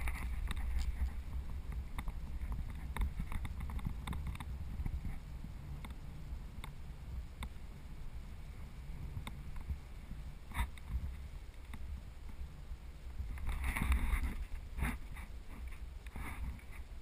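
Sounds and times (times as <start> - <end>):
crackle: 0.0 - 17.0
wind rumble on microphone: 0.0 - 17.0
faint clicks: 7.4 - 7.6, 10.5 - 12.4.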